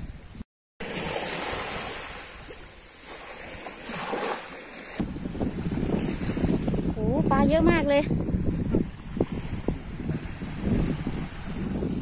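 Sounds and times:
small waves washing onto beach: 0:00.8 - 0:07.3, 0:07.9 - 0:12.0
wind buffeting microphone: 0:05.0 - 0:12.0.

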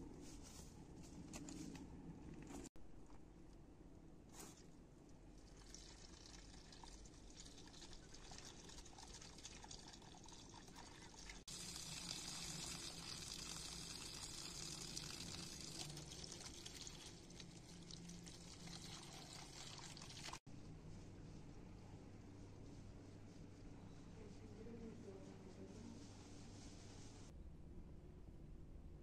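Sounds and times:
water splashing into colander: 0:05.4 - 0:20.4.

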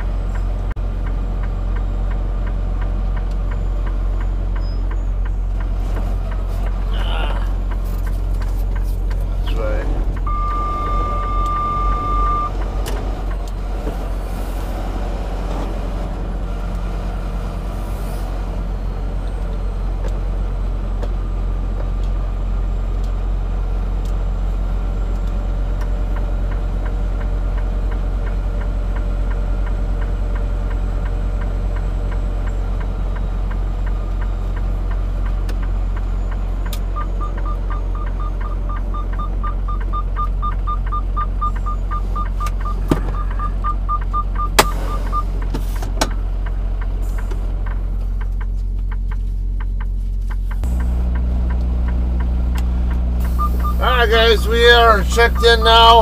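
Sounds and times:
truck engine idling: 0:00.0 - 0:56.0
short electronic beeps: 0:10.3 - 0:12.5, 0:53.2 - 0:56.0.

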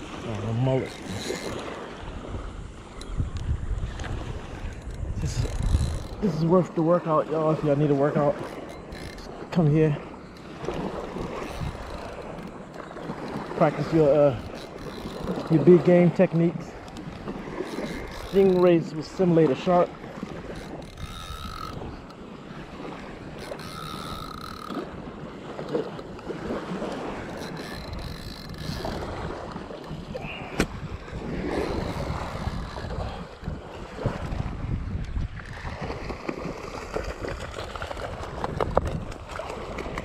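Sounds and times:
small waves washing on beach: 0:00.0 - 0:40.0
wind buffeting microphone: 0:00.0 - 0:40.0
fishing reel clicking: 0:00.4 - 0:01.8, 0:04.6 - 0:06.5, 0:08.1 - 0:09.5, 0:10.3 - 0:22.2, 0:23.2 - 0:25.0, 0:25.6 - 0:30.0, 0:31.5 - 0:33.4.

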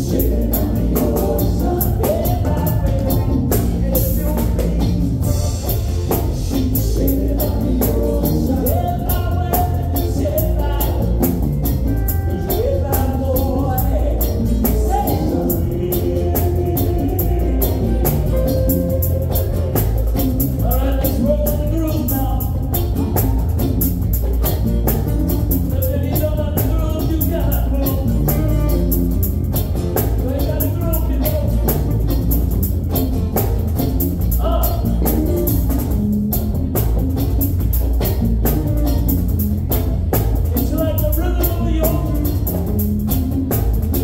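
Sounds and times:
person singing: 0:00.0 - 0:11.4, 0:12.2 - 0:20.0
live reggae band: 0:00.0 - 0:44.0.

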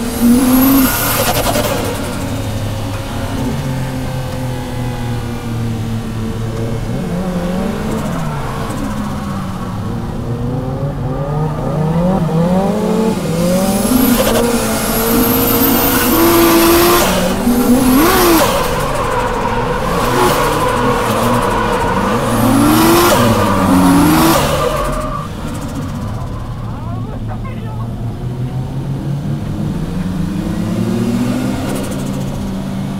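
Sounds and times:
car engine revving: 0:00.0 - 0:32.9
tyres squealing: 0:12.5 - 0:27.9.

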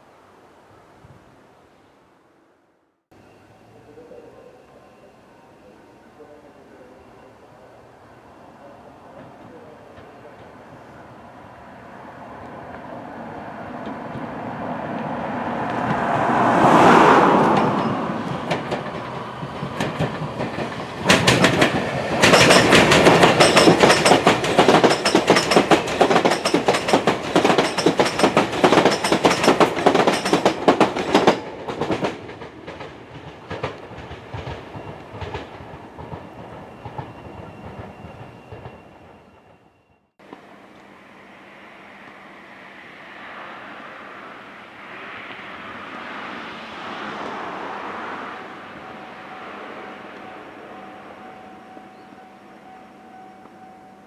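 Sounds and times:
electric train passing: 0:01.6 - 0:54.0
wheels clattering over rail joints: 0:17.4 - 0:38.8.

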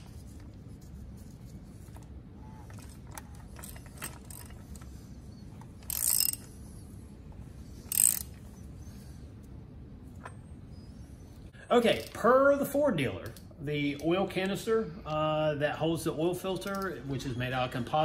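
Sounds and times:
hand ratchet clicking: 0:02.8 - 0:04.9, 0:05.6 - 0:06.5, 0:07.8 - 0:08.5.

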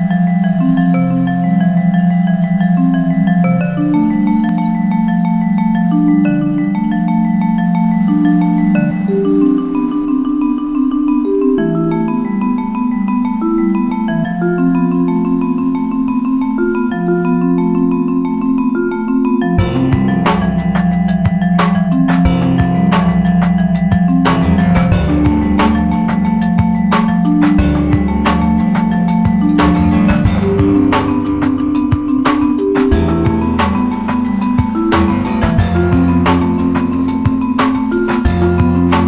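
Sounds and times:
background music melody: 0:00.0 - 0:39.0
drum beat: 0:19.6 - 0:39.0.

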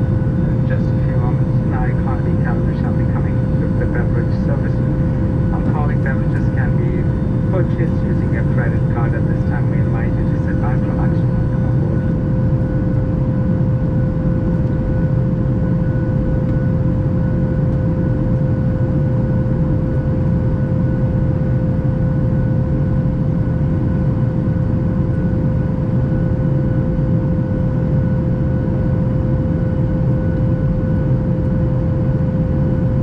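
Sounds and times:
high whine: 0:00.0 - 0:13.0
steady hum: 0:00.0 - 0:18.5
aircraft cabin rumble: 0:00.0 - 0:33.0.

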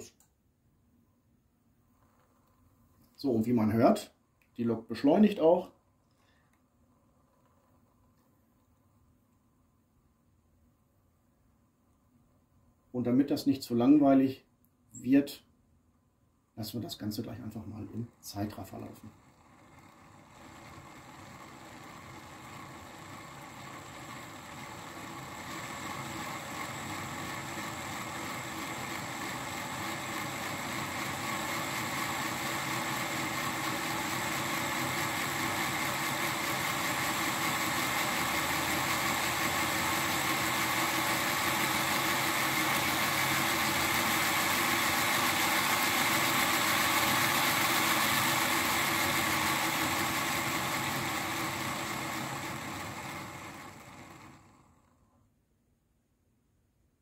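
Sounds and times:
model train motor whirring hum: 0:17.4 - 0:54.9.

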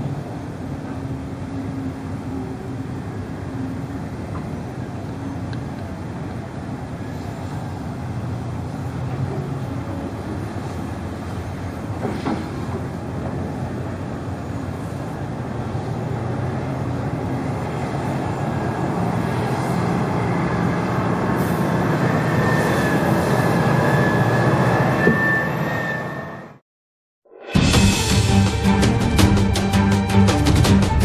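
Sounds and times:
excavator diesel engines rumbling: 0:00.0 - 0:26.6.

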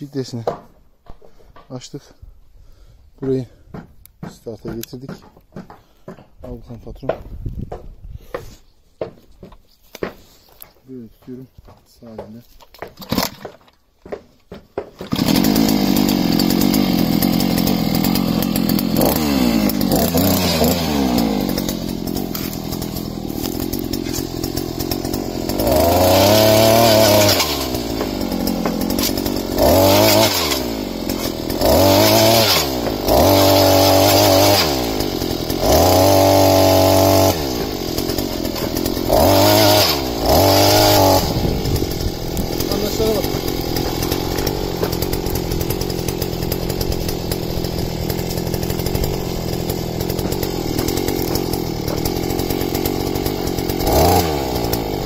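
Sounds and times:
auger boring into stony soil: 0:09.4 - 0:55.0
two-stroke engine revving: 0:15.0 - 0:55.0.

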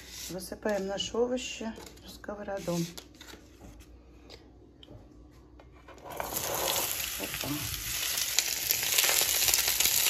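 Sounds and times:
oil sizzling in a pan: 0:06.0 - 0:10.0.

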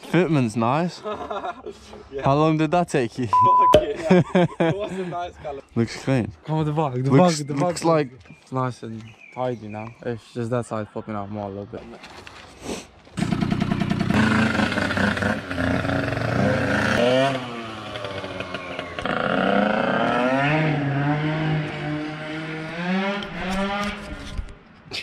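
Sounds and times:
small two-stroke engine revving: 0:13.2 - 0:24.0.

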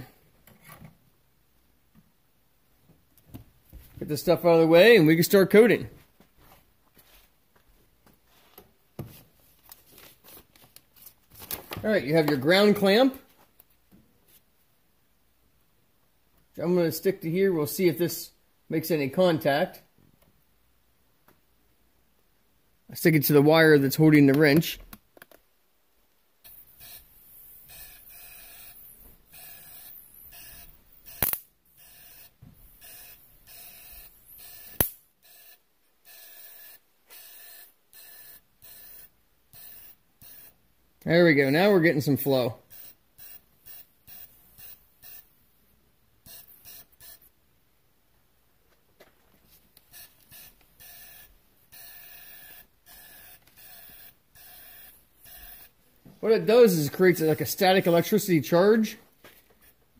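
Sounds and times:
sharp clicks: 0:30.4 - 0:31.5.

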